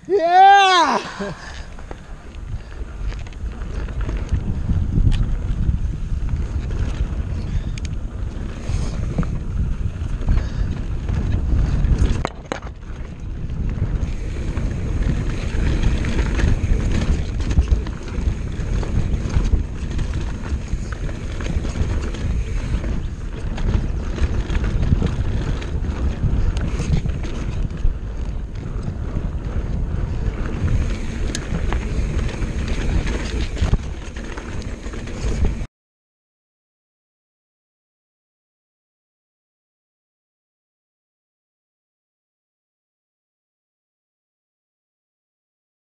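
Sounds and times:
wind buffeting microphone: 0:00.0 - 0:35.7
tyres rumbling on dirt: 0:00.1 - 0:35.7
bike clicks and knocks: 0:01.5 - 0:35.7.

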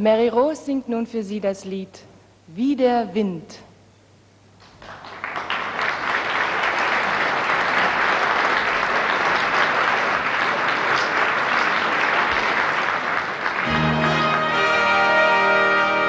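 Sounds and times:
audience applauding: 0:04.6 - 0:16.0
big band with brass: 0:13.6 - 0:16.0.

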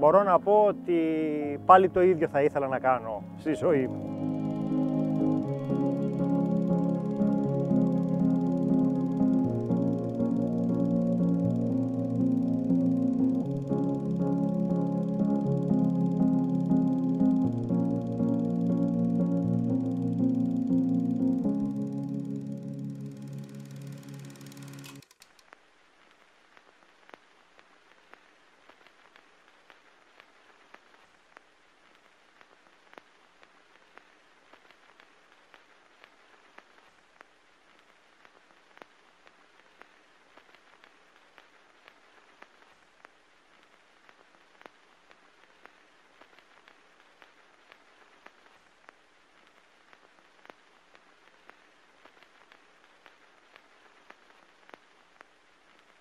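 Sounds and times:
small clicks and pops: 0:21.2 - 0:56.0.

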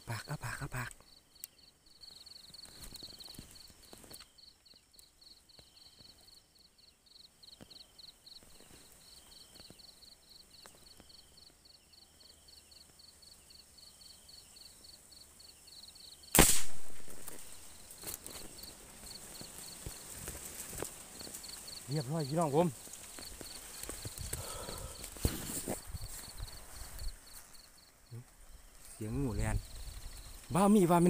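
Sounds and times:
insects chirping: 0:00.0 - 0:31.0
gunshot: 0:16.3 - 0:17.5.

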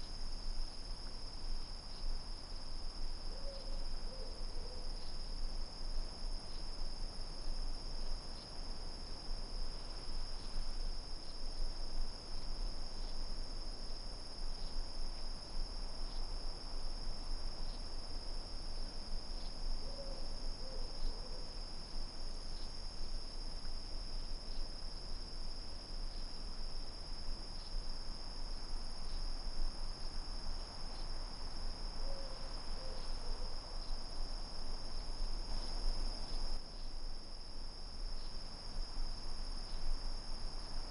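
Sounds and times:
crickets chirring: 0:00.0 - 0:40.9.

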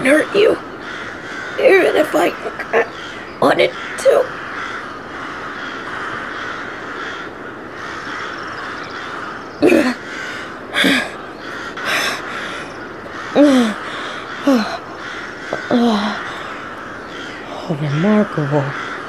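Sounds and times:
crows cawing: 0:00.0 - 0:19.0
outdoor background hiss: 0:00.0 - 0:19.0.

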